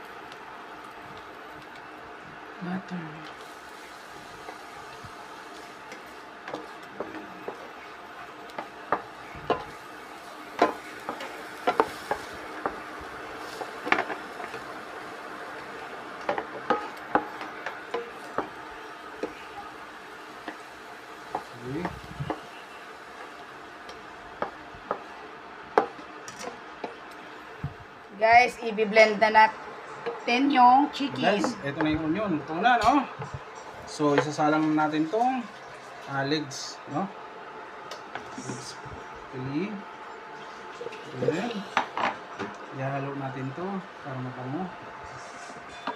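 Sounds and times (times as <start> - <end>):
faint sizzle: 0.0 - 45.9
spatula knocking and scraping pan: 10.6 - 14.7, 16.2 - 18.6, 21.3 - 22.4.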